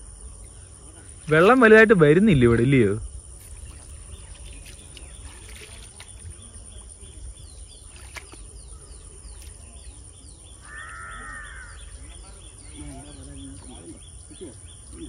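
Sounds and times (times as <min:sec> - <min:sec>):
crickets trilling: 0:00.0 - 0:15.0
bird chirping: 0:03.4 - 0:15.0.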